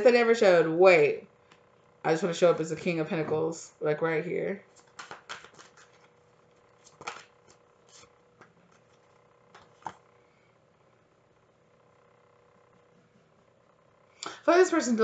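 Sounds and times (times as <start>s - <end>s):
faint steady hum: 0.0s - 15.0s
cards being shuffled: 4.6s - 10.1s.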